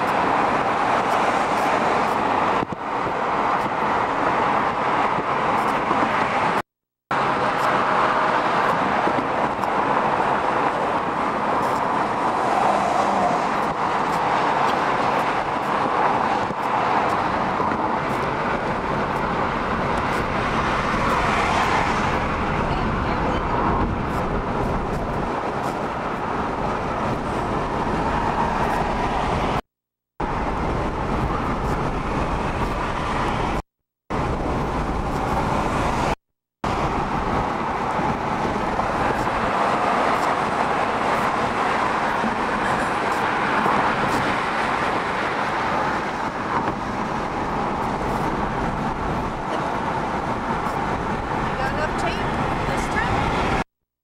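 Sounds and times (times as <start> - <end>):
car road and wind noise: 0.0 - 53.7.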